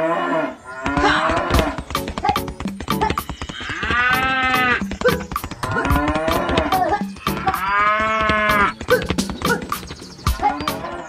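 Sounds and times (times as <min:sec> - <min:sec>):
cattle mooing: 0:00.0 - 0:01.8, 0:03.6 - 0:04.9, 0:05.6 - 0:09.0
steady sharp clicks: 0:01.4 - 0:11.0.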